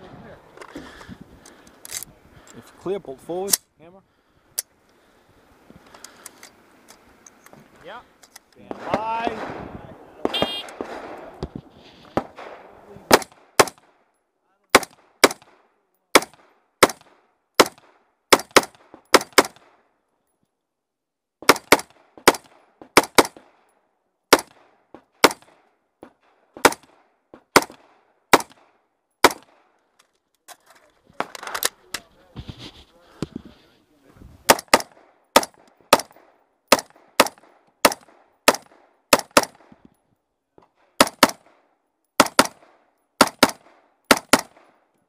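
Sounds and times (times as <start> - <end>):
sharp rifle shots: 8.7 - 11.4, 12.2 - 14.0, 14.7 - 19.8, 21.4 - 23.6, 24.3 - 25.6, 26.2 - 29.7, 34.4 - 39.8, 40.8 - 44.8.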